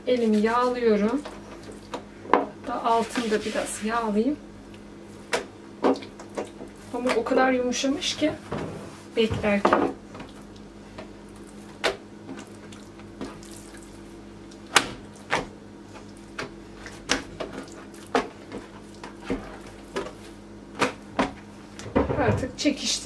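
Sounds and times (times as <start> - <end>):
wet dough slaps and squelches: 4.7 - 7.3, 10.1 - 21.4.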